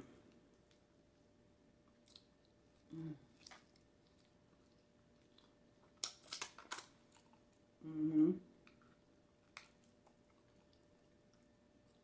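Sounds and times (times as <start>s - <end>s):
soft chewing: 0.0s - 12.0s
voice humming: 7.8s - 8.5s.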